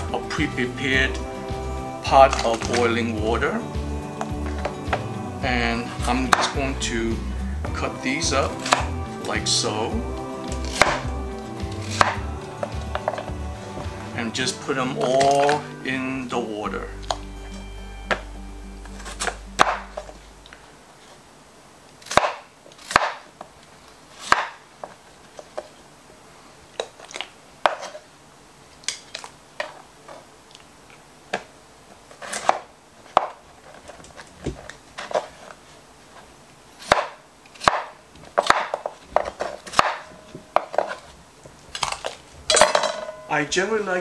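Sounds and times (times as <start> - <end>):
knife chopping on wooden board: 6.3 - 6.6, 8.5 - 8.9, 10.5 - 14.0, 19.2 - 19.9, 22.1 - 23.2, 24.3 - 24.6, 36.8 - 41.0.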